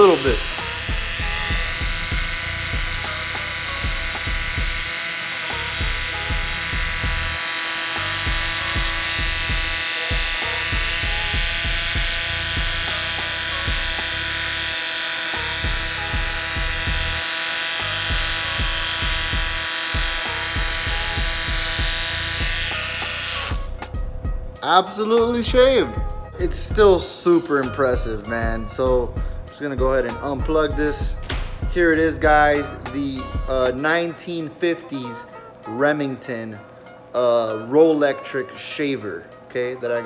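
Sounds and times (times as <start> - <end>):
shaver rubbing on skin: 0.0 - 23.8
electric shaver buzzing: 0.0 - 24.6, 28.0 - 34.2.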